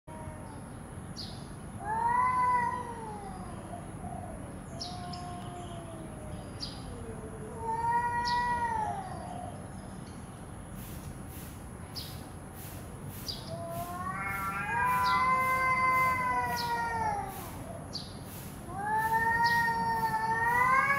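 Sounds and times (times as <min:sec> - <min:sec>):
cat moaning call: 0:01.8 - 0:09.6, 0:13.5 - 0:17.9, 0:18.7 - 0:20.9
cats yowling: 0:01.8 - 0:09.6, 0:13.4 - 0:17.9, 0:18.6 - 0:20.9.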